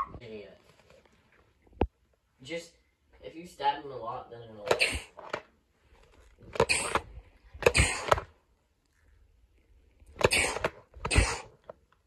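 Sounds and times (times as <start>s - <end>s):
person breathing out sharply: 6.6s - 8.3s.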